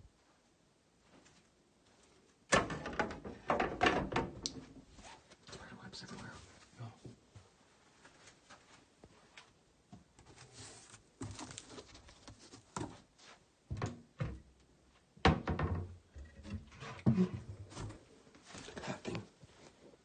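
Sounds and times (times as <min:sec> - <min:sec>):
handling thumps and knocks: 0:02.5 - 0:04.9, 0:15.2 - 0:18.1.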